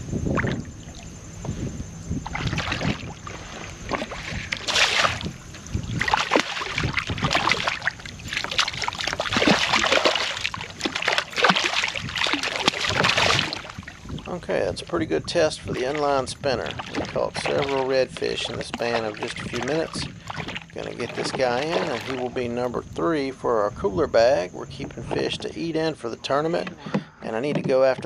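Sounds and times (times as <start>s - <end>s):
water sloshing against hull: 0.0s - 28.0s
fish thrashing and splashing: 2.2s - 14.4s, 15.0s - 22.7s.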